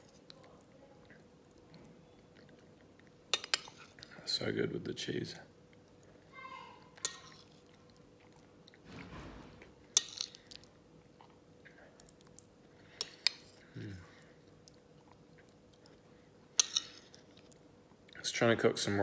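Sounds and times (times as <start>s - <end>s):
quiet chewing: 0.0s - 4.3s, 5.5s - 18.2s
low vocal sound: 13.6s - 14.2s.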